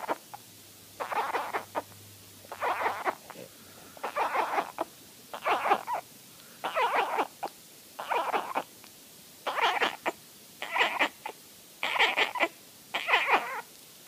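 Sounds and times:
kitten mewing: 0:01.0 - 0:01.9, 0:02.5 - 0:06.0, 0:06.6 - 0:08.7, 0:09.5 - 0:11.2, 0:11.8 - 0:13.7.

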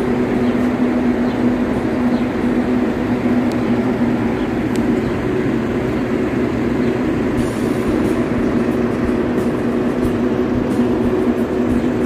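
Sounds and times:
low hum: 0:00.0 - 0:12.0
mechanical drone: 0:00.0 - 0:12.0.

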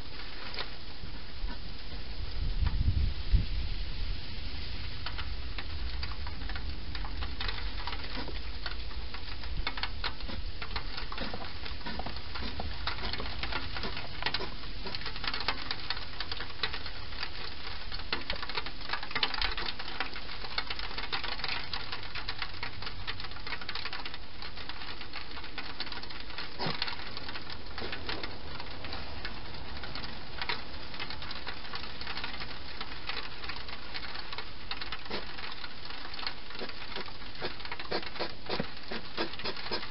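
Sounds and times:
steady hiss: 0:00.0 - 0:39.9
hedgehog crunching and scuffling: 0:07.3 - 0:22.3, 0:24.0 - 0:39.9.

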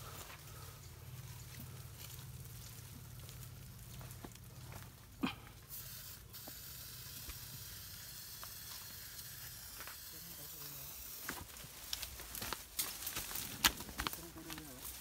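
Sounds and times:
leaves and twigs rustling: 0:00.0 - 0:05.2, 0:07.2 - 0:15.0
steady high hiss: 0:05.5 - 0:12.8.

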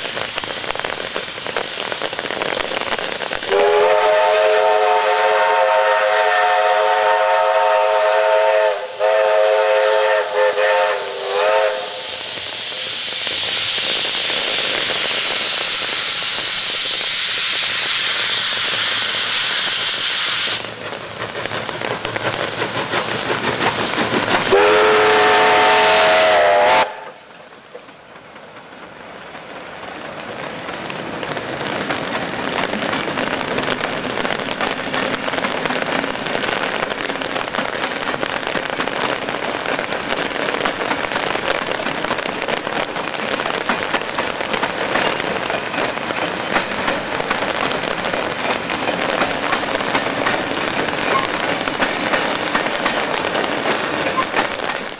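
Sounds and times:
heavy rain hissing: 0:00.0 - 0:54.9
steam hissing: 0:00.0 - 0:54.9
steam whistle blast: 0:03.5 - 0:12.1, 0:24.5 - 0:27.2
carriages rolling on track: 0:12.3 - 0:26.2, 0:27.2 - 0:54.9.

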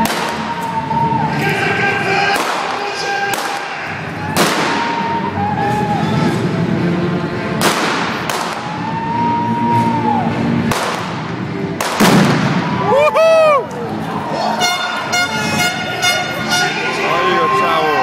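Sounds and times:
music: 0:00.0 - 0:18.0
pyrotechnic bangs echoing: 0:02.2 - 0:05.0, 0:07.5 - 0:08.7, 0:10.6 - 0:12.8.

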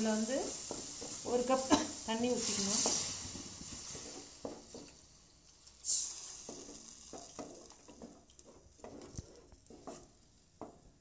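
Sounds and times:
spatula scraping in a pan: 0:00.0 - 0:05.0
masala sizzling in a pan: 0:00.0 - 0:11.0.

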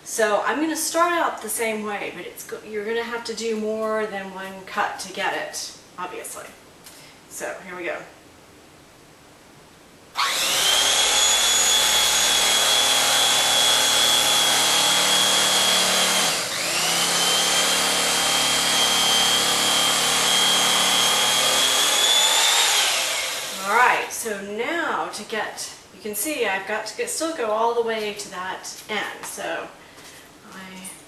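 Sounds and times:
blades sawing through foam: 0:10.2 - 0:23.6
electric knife motor whining: 0:10.2 - 0:23.7.

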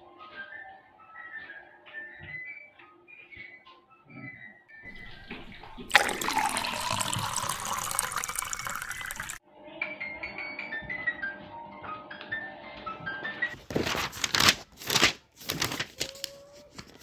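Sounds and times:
light background music: 0:00.0 - 0:06.6, 0:09.5 - 0:15.4.

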